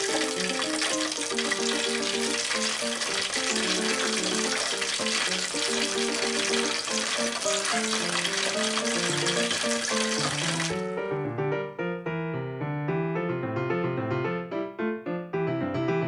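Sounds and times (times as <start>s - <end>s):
fish sizzling in deep fryer: 0.0s - 10.8s
background music melody: 0.0s - 16.0s.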